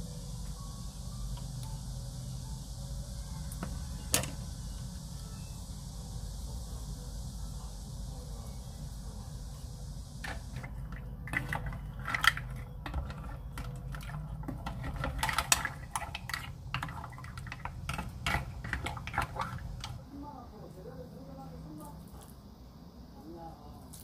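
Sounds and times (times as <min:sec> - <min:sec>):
steady low hum: 0:00.0 - 0:24.0
mussel shells clicking in pot: 0:10.2 - 0:20.0.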